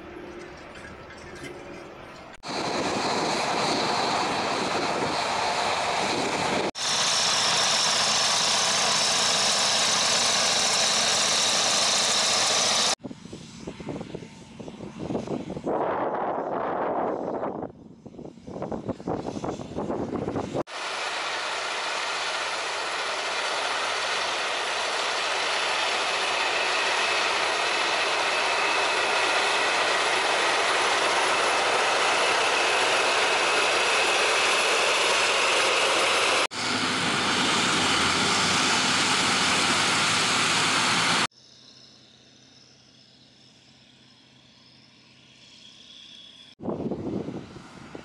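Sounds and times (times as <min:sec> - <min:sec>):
tractor diesel engine under load: 0:00.0 - 0:13.0, 0:20.7 - 0:41.3.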